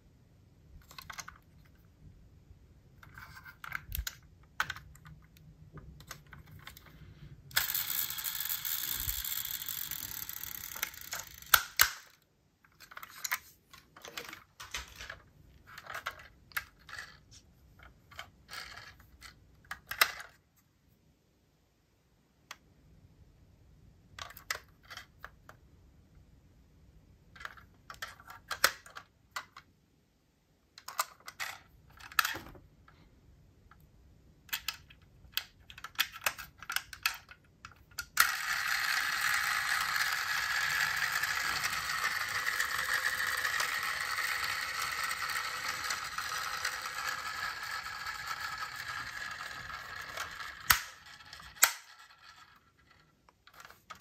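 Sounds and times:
toy cars clicking and clacking: 6.1 - 13.5, 14.1 - 20.3, 27.4 - 29.6, 34.5 - 54.0.

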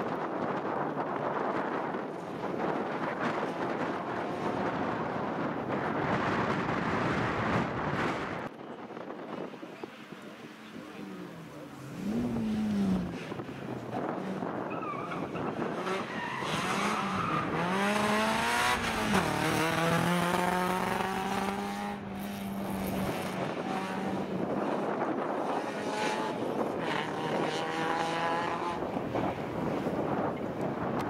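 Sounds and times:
rally car engine at high revs: 11.0 - 30.1.

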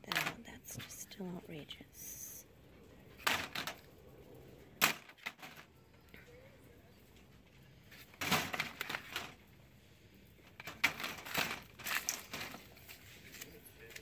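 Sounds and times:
packaged cosmetics rustling in wire bin: 3.1 - 3.9, 7.9 - 9.4, 10.4 - 13.6.

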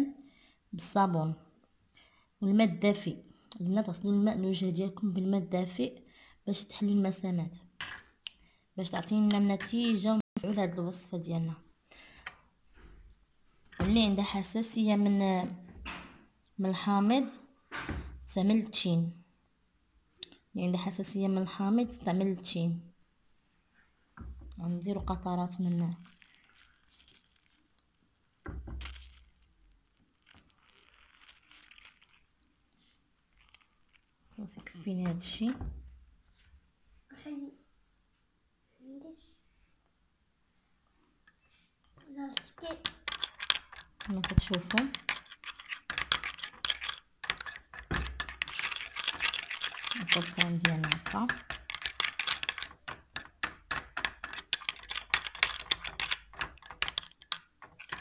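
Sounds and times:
faint rustles of peel and fingers: 25.9 - 28.4, 29.0 - 34.4
spoon scraping glass bowl: 26.0 - 27.6, 30.2 - 32.3, 42.4 - 58.0.

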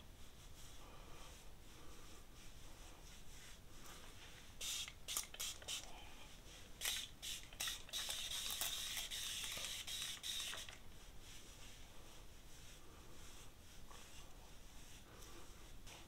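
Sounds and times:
spray bottle hissing spritzes: 4.6 - 5.9, 6.8 - 10.8.

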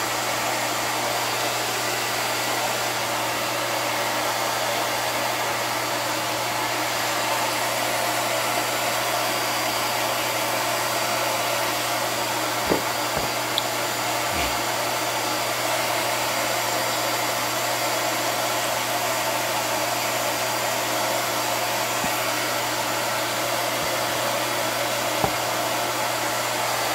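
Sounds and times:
blower rushing noise: 12.2 - 15.2, 19.6 - 26.9
faint knocks: 12.7 - 13.4.

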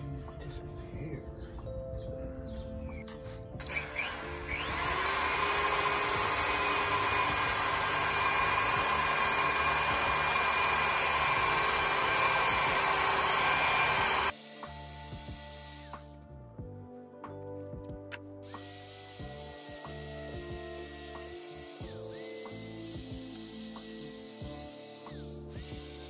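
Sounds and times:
electric drill whining: 3.6 - 16.2, 18.5 - 26.0
buffing pad polishing hull: 6.0 - 14.3.

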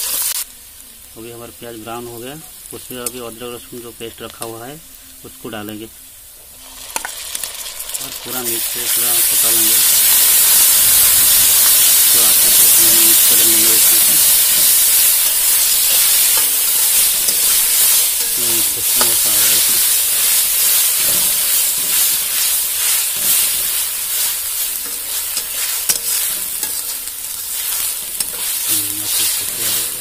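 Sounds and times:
onions sizzling in hot oil: 0.0 - 30.0
spoon scraping and tapping pan: 15.9 - 19.8, 24.7 - 29.2.

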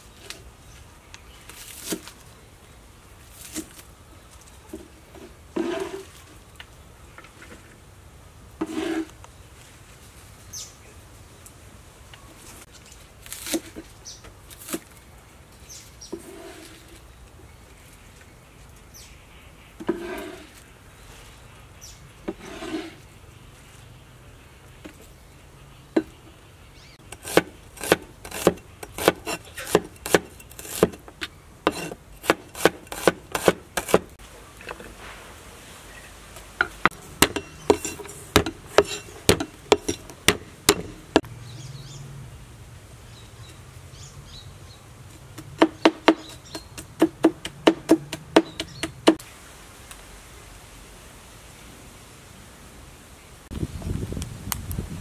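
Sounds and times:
cleaver rustling onion pieces: 27.0 - 35.2, 36.7 - 41.2.

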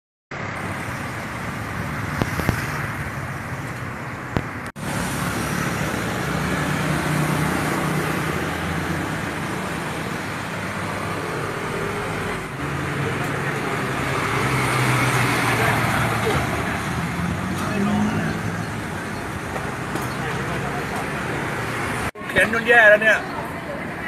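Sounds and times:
cars and motorbikes passing: 0.4 - 24.0.

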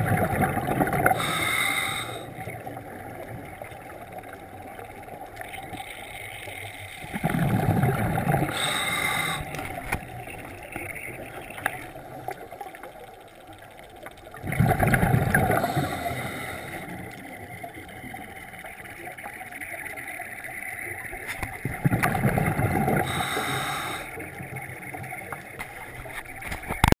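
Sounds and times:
exhaled bubbles underwater: 0.0 - 26.9.

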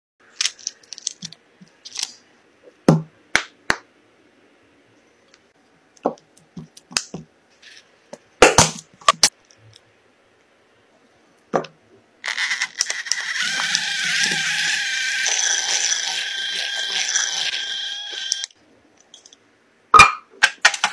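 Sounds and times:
electric hand mixer whirring: 12.3 - 18.5.

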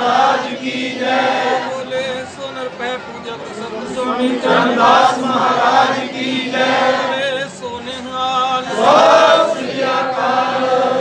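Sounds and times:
group of voices chanting: 3.8 - 7.2, 8.6 - 11.0.

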